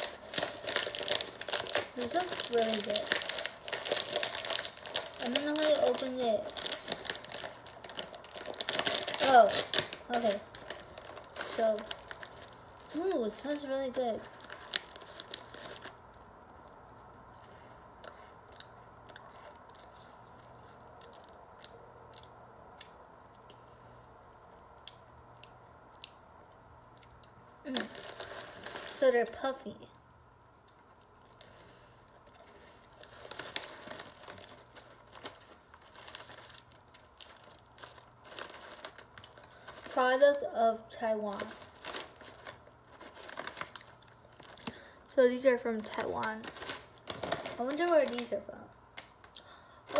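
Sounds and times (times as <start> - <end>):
plastic wrapper crinkling: 0.0 - 16.2, 27.6 - 29.9, 30.9 - 49.9
chewing cookie: 16.5 - 28.6.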